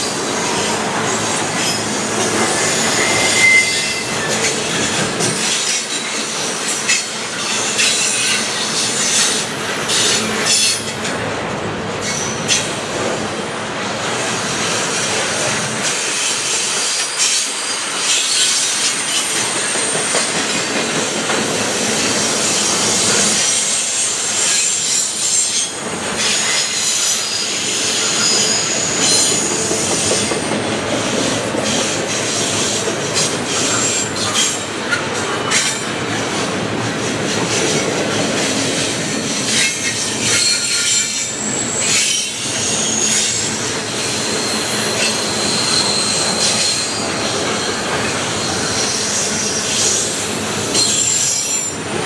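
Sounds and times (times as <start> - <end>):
freight train wheels rumbling: 0.0 - 52.0
high-pitched wheel squeal: 1.1 - 5.0, 22.4 - 30.5, 39.5 - 50.1.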